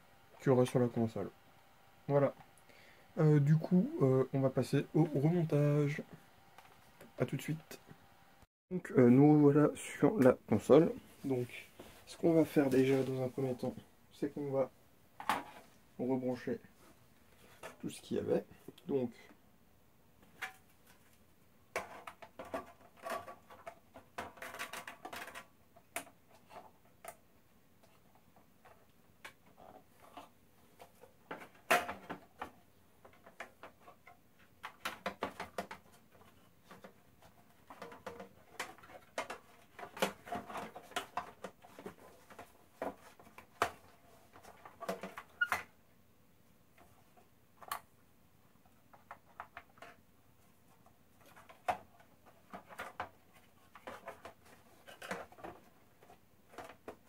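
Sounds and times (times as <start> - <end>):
clicks taps and scraping of parts: 27.8 - 45.7, 50.7 - 57.0.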